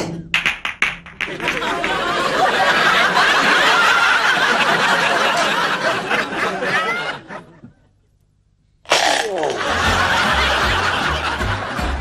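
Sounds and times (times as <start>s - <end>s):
audience laughing loudly: 1.3s - 7.9s, 9.4s - 12.0s.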